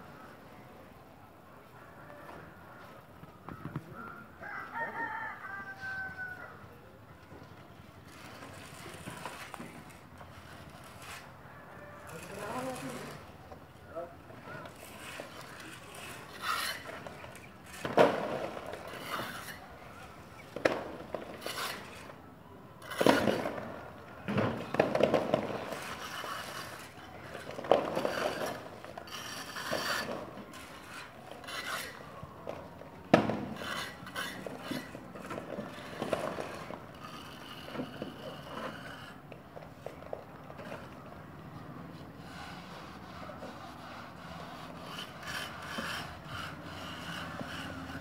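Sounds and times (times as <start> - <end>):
plastering tools scraping plaster: 8.0 - 11.4, 12.0 - 22.2, 22.8 - 41.0, 41.6 - 48.0.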